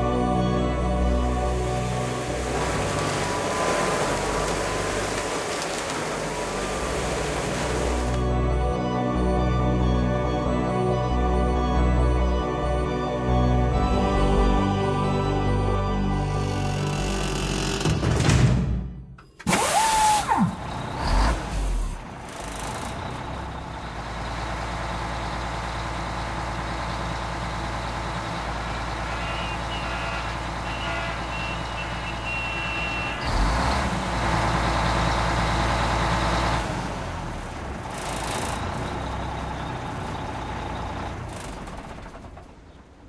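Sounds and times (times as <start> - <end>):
truck engine running: 0.0 - 11.3, 19.5 - 43.0
short falling squeal: 19.5 - 20.6.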